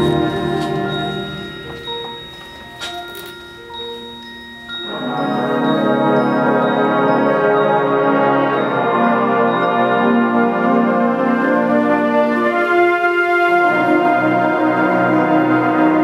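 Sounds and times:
concert band playing chords: 0:00.0 - 0:02.9.

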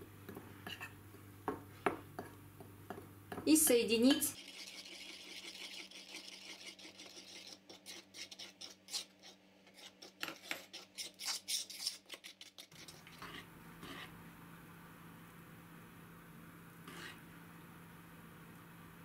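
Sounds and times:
utensil scraping batter in bowl: 0:04.2 - 0:14.2, 0:16.8 - 0:17.2.

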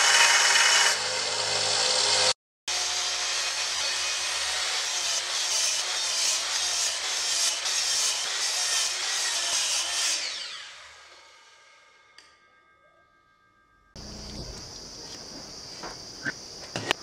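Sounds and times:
miter saw cutting wood: 0:00.0 - 0:12.1
saw blade spinning down whine: 0:10.1 - 0:12.8.

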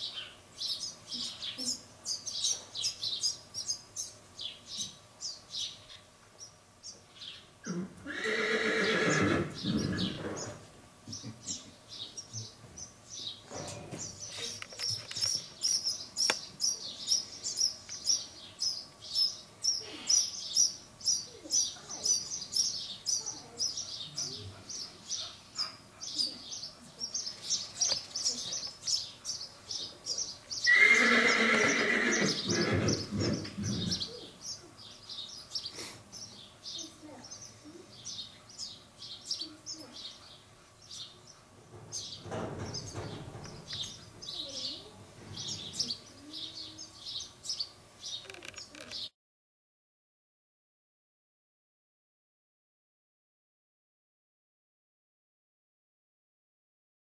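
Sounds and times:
small birds chirping: 0:00.0 - 0:49.1
mule whinnying: 0:07.7 - 0:10.2, 0:30.7 - 0:33.0.

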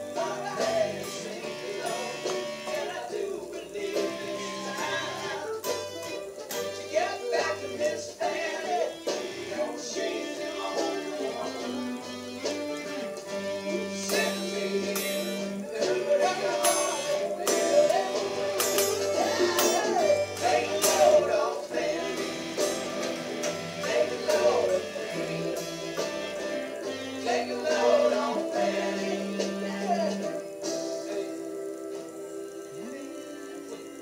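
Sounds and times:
electric guitar playing: 0:00.0 - 0:03.0, 0:10.0 - 0:34.0
recorded song with male vocals: 0:00.0 - 0:34.0.

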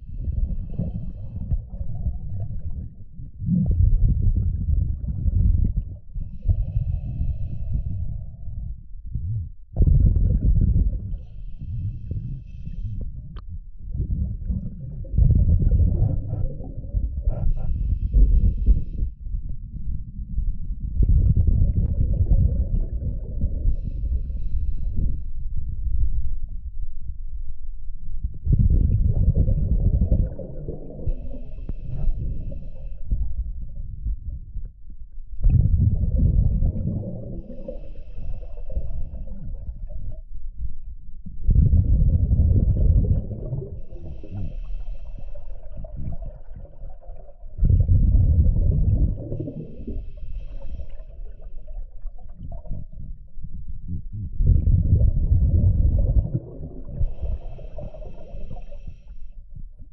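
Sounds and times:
exhaled bubbles gushing underwater: 0:00.0 - 0:08.6, 0:09.3 - 0:19.1, 0:20.8 - 0:24.8, 0:28.4 - 0:34.7, 0:35.4 - 0:40.3, 0:41.4 - 0:59.1
regulator inhale hiss: 0:06.3 - 0:08.4, 0:11.2 - 0:13.2, 0:17.3 - 0:19.1, 0:23.7 - 0:25.4, 0:31.1 - 0:33.2, 0:37.4 - 0:39.4, 0:43.8 - 0:45.8, 0:49.3 - 0:51.7, 0:57.0 - 0:59.4.

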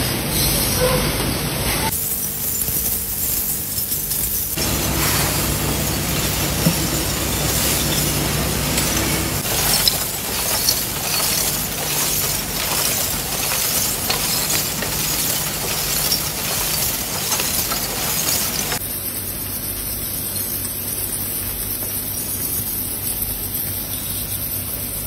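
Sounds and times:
low conveyor hum: 0:04.2 - 0:20.3
glass bottles clinking and crashing: 0:04.6 - 0:18.8.

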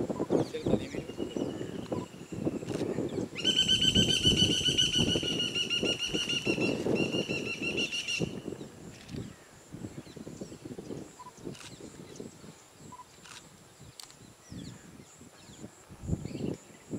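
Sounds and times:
high-pitched trilling call: 0:03.4 - 0:08.4.

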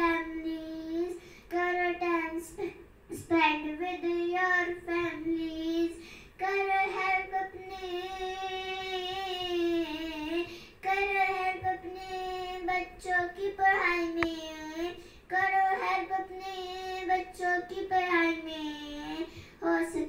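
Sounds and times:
girl singing unaccompanied: 0:00.0 - 0:20.0.

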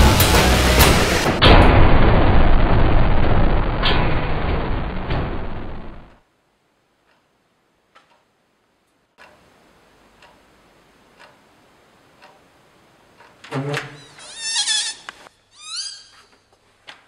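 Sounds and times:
clock ticking faintly: 0:06.9 - 0:13.5.

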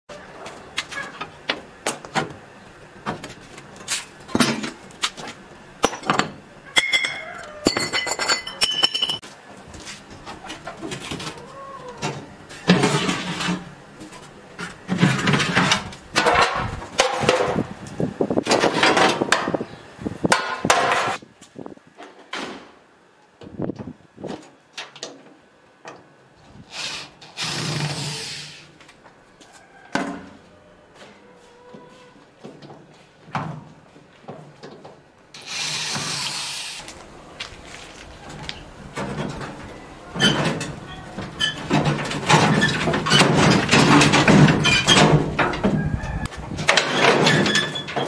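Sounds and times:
metal parts clinking and scraping: 0:06.8 - 0:09.2
oven trays scraping: 0:12.0 - 0:13.8, 0:14.7 - 0:17.6, 0:38.2 - 0:48.0.

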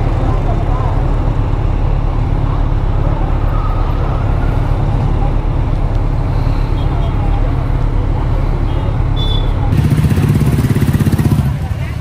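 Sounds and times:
motorcycle engine running: 0:05.2 - 0:12.0.

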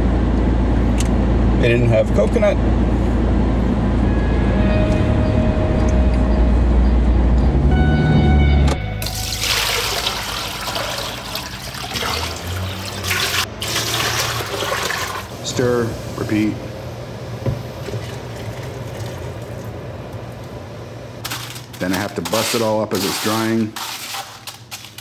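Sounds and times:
low rumble inside car: 0:00.0 - 0:09.0
water pouring into metal pot: 0:09.0 - 0:15.3.

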